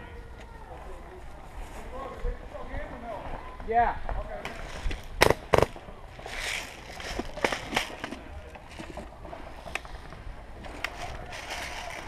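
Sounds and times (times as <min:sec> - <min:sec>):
knocks of carried gear: 0:04.4 - 0:12.0.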